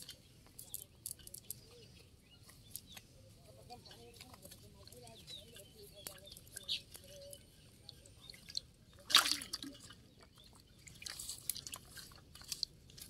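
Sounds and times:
water drips: 0:04.8 - 0:13.0
fish splashing in water: 0:07.9 - 0:13.0.

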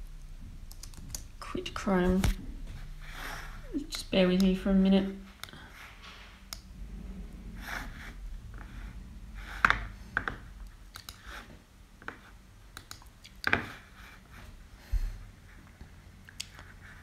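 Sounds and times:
low room hum: 0:00.0 - 0:17.0
keyboard and mouse clicks: 0:00.7 - 0:01.3, 0:04.2 - 0:04.6, 0:05.4 - 0:05.6, 0:06.5 - 0:06.7, 0:09.6 - 0:13.7.

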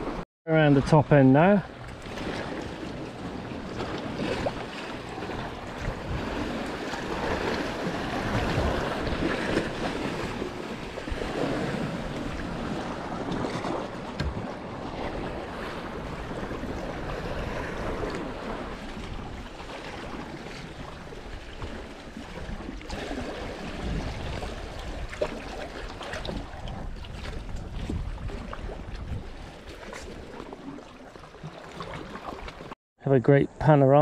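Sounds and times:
waves splashing on rocks: 0:01.4 - 0:26.4
wind on microphone: 0:01.7 - 0:30.7.

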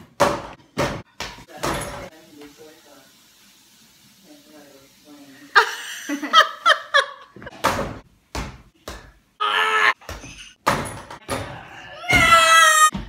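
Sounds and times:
ball thudding on backboard and door: 0:00.0 - 0:02.1, 0:07.5 - 0:09.2, 0:10.0 - 0:12.3
woman laughing: 0:05.5 - 0:07.5.

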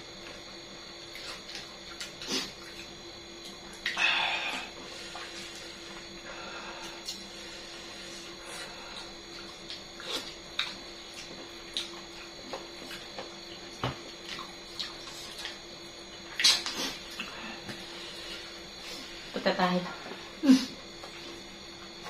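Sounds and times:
faint steady hum: 0:00.0 - 0:22.0
chewing smacks and clicks: 0:09.4 - 0:13.4.

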